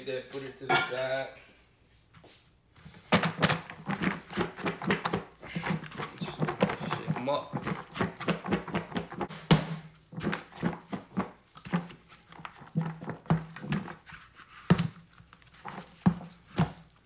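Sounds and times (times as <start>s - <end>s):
food tumbling in shaken plastic bowl: 2.8s - 9.3s, 10.0s - 17.0s.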